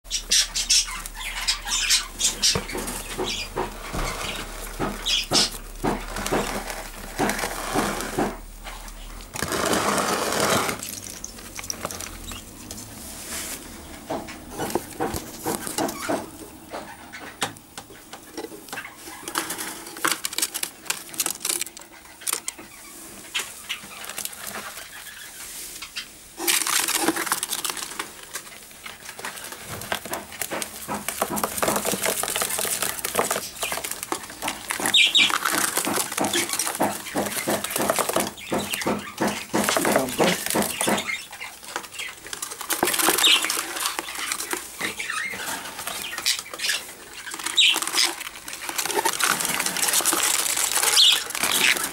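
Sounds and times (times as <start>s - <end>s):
birds scratching and fluttering: 0.1s - 51.9s.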